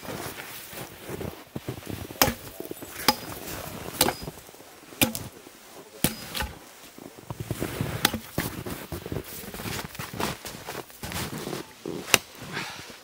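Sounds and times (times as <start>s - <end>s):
axe chopping into log: 2.2s - 3.4s, 4.0s - 4.4s, 5.0s - 5.4s, 6.0s - 6.6s, 8.0s - 8.5s.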